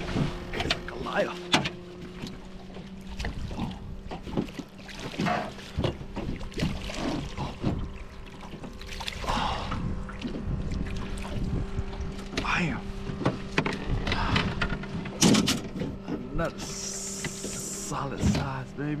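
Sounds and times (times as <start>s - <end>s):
steady low hum: 0.0s - 19.0s
fish thrashing and splashing: 2.0s - 12.6s.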